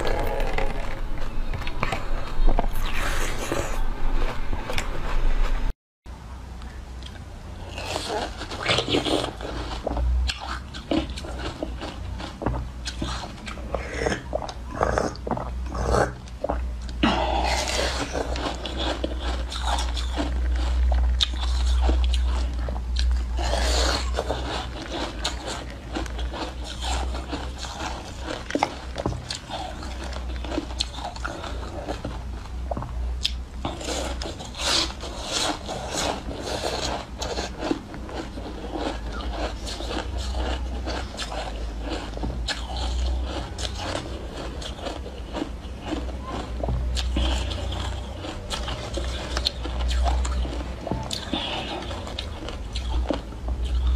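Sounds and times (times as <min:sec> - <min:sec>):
steady low hum: 0:00.0 - 0:53.9
ice crunching between teeth: 0:33.2 - 0:53.9.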